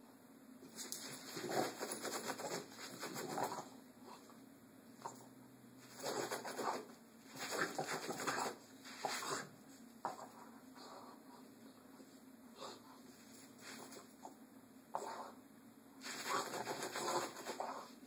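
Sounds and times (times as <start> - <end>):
dog sniffing and snuffling: 5.8 - 15.4, 16.0 - 18.0.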